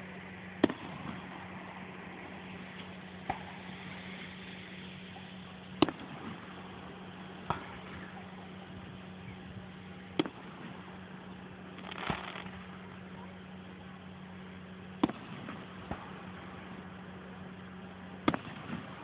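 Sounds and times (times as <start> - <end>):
steady low hum: 0.0 - 19.0
fireworks bangs: 11.7 - 12.7.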